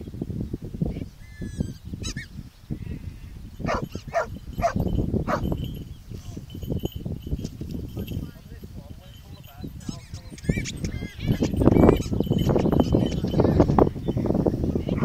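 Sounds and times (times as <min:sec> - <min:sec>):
wind rumble on microphone: 0:00.0 - 0:15.0
dog barking: 0:03.6 - 0:05.6.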